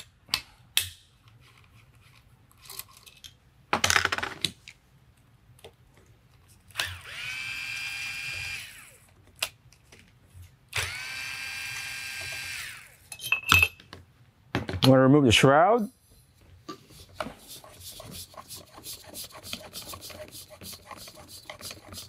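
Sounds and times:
electric screwdriver whining: 0:06.7 - 0:09.1, 0:10.7 - 0:13.0.

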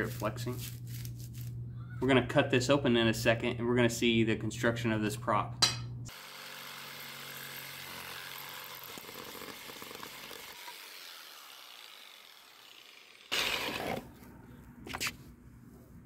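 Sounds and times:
jigsaw cutting foam: 0:06.1 - 0:14.1.

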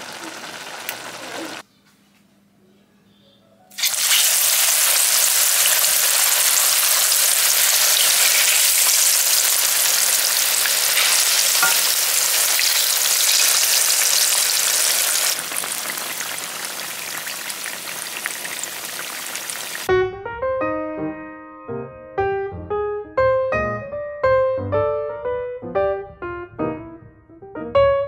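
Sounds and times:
plantains sizzling in hot oil: 0:00.0 - 0:01.6, 0:03.7 - 0:19.9
small oil crackles: 0:00.0 - 0:01.6, 0:03.7 - 0:19.9.

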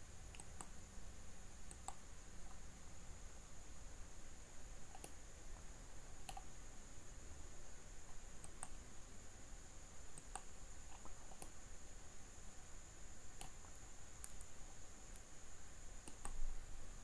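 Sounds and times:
faint high-pitched whine: 0:00.0 - 0:17.0
computer mouse clicking: 0:00.3 - 0:00.8, 0:01.7 - 0:02.6, 0:04.9 - 0:05.2, 0:06.2 - 0:06.6, 0:08.1 - 0:08.8, 0:10.1 - 0:11.6, 0:13.4 - 0:15.3, 0:16.0 - 0:16.4.

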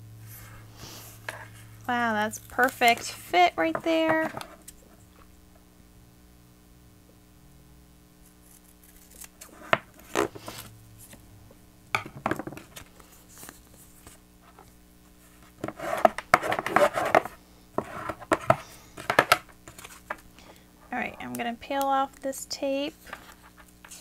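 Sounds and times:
paper handled with taps and rustles: 0:15.4 - 0:20.3.

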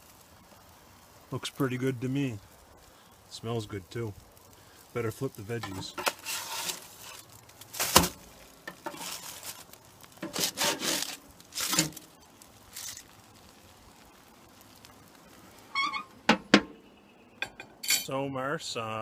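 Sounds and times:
spatula clanking on grill grate: 0:05.6 - 0:07.2, 0:07.8 - 0:09.3, 0:10.2 - 0:12.0
metallic ring: 0:17.4 - 0:18.1.

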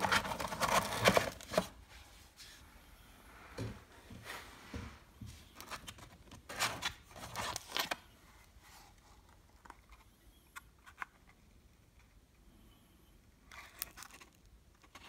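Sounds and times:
cardboard boxes scraping and rustling: 0:00.0 - 0:01.8.

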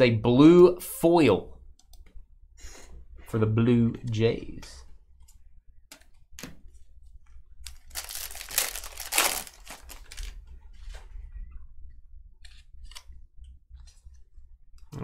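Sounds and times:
foil wrapper crinkling: 0:07.6 - 0:10.4.

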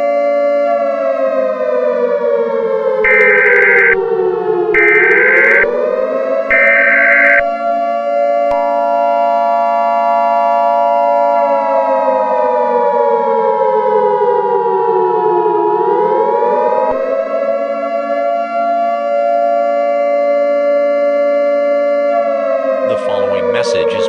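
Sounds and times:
warning siren wailing: 0:00.0 - 0:24.0
high electronic beep: 0:03.1 - 0:04.0, 0:04.8 - 0:05.7, 0:06.5 - 0:07.5
two-note electronic alert tone: 0:03.1 - 0:04.0, 0:04.8 - 0:05.7, 0:06.5 - 0:07.6.

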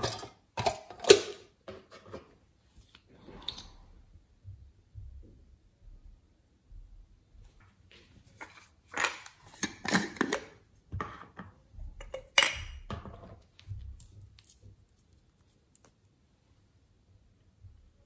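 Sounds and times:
jars and containers being handled: 0:00.0 - 0:03.9, 0:07.9 - 0:15.9.

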